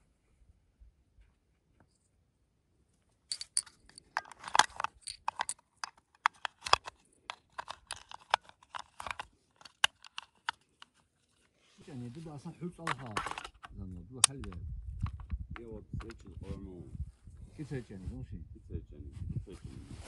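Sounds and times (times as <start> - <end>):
metal cartridges clinking: 3.3 - 10.8.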